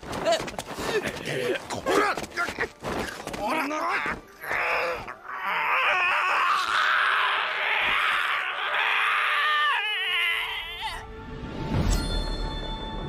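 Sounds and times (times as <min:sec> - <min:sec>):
young man screaming and sobbing: 0:03.4 - 0:11.1.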